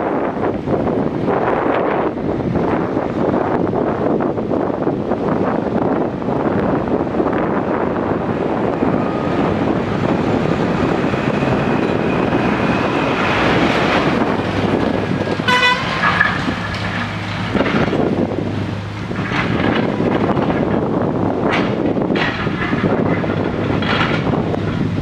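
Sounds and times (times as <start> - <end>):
road traffic passing: 0.0 - 25.0
backhoe engine running: 0.2 - 25.0
vehicle horn toot: 15.4 - 16.4.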